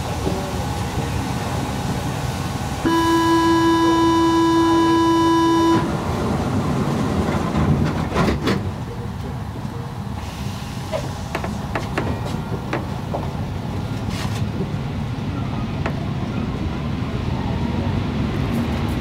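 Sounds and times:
stationary train hum: 0:00.0 - 0:19.0
buzzer-like warning tone: 0:02.9 - 0:05.9
train doors clunking shut: 0:02.9 - 0:10.3, 0:10.9 - 0:14.8.

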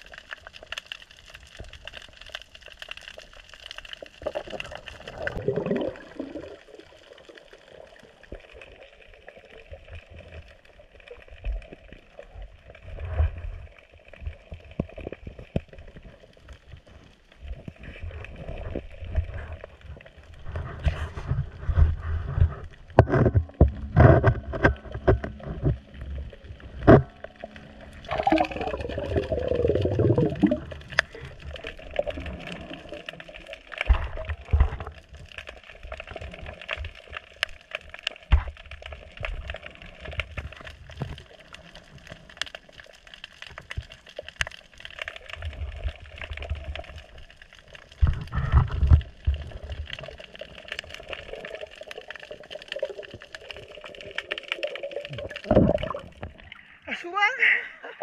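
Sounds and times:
underwater gurgling and bubbling: 0:00.0 - 0:56.8
gurgling burst with falling pitch: 0:04.4 - 0:07.2, 0:23.3 - 0:34.4, 0:52.3 - 0:56.5.

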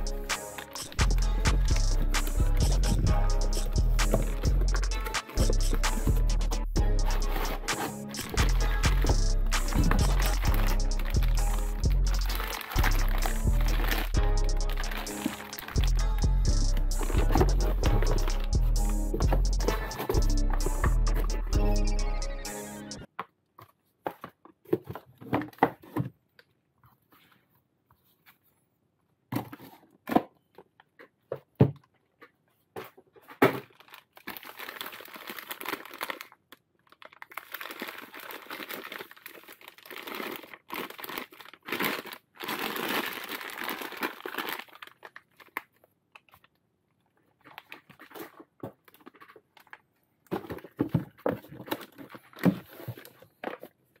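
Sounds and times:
plastic bag crinkling and tearing: 0:07.0 - 0:09.1, 0:09.7 - 0:16.2, 0:33.5 - 0:46.6.

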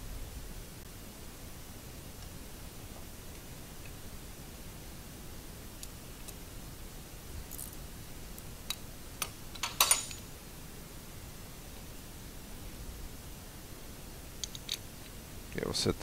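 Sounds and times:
small metal parts clinking: 0:07.5 - 0:07.8, 0:09.5 - 0:10.3, 0:14.4 - 0:14.8.

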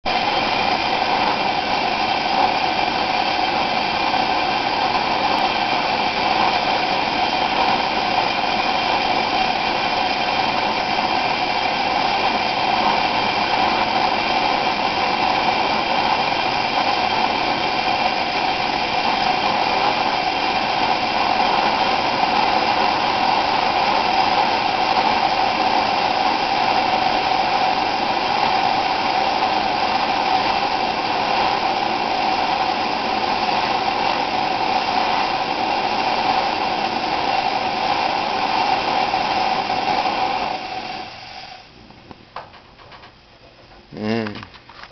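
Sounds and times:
stove burner hissing: 0:00.0 - 0:44.9.

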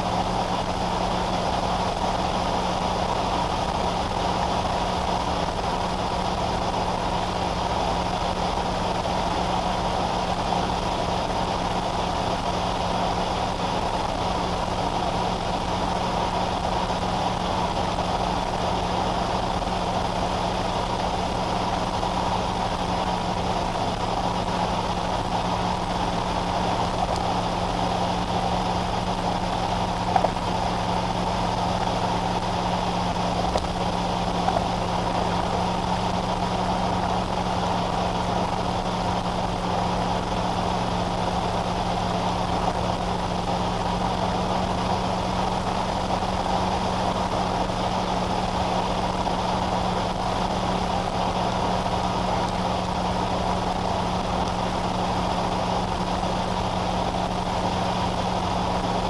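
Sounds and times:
car engine hum: 0:00.0 - 0:59.0
road noise hiss: 0:00.0 - 0:59.0.

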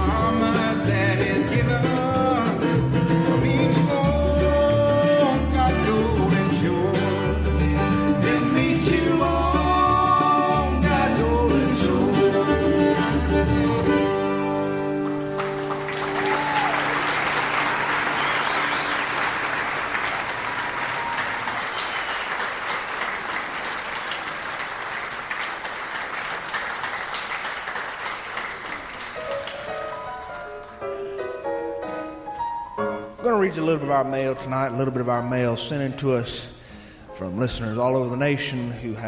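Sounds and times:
string band playing: 0:00.0 - 0:17.9
audience applauding and cheering: 0:14.8 - 0:31.0.

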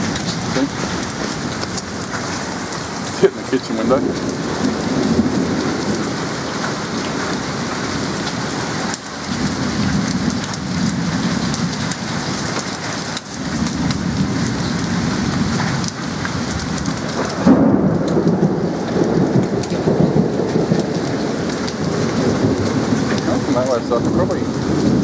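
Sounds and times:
low rumbles: 0:00.0 - 0:12.0, 0:13.5 - 0:25.0
hailstones ticking: 0:00.0 - 0:25.0
heavy rain and hail: 0:00.0 - 0:25.0.

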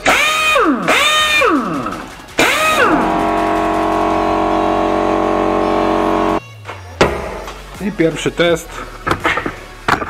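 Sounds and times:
pneumatic impact wrench whine: 0:00.0 - 0:06.4.

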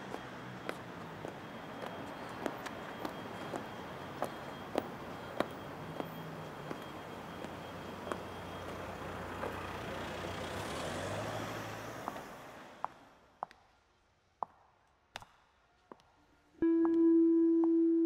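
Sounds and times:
passing vehicle engine and road noise: 0:00.0 - 0:13.4.

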